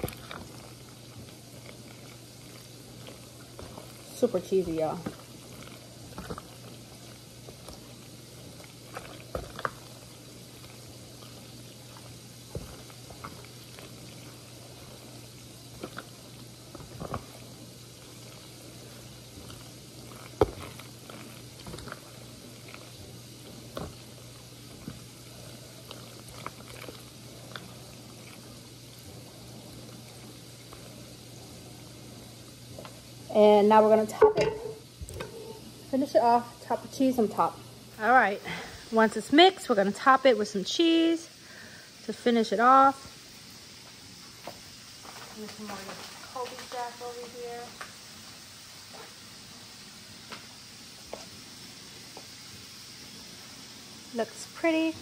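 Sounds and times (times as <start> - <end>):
macaroni squishing when stirred: 0.0 - 33.5.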